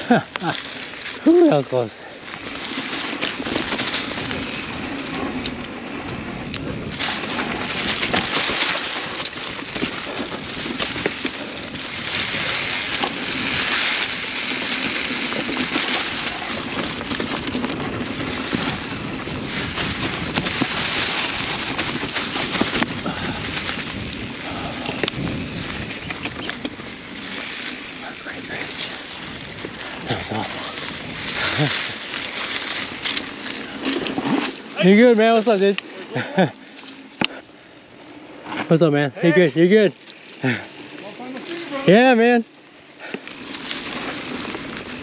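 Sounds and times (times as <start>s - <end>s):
bike knocks and rattles: 0.0s - 36.0s
bike tyres on dirt trail: 0.0s - 45.0s
wind rush: 3.4s - 32.0s.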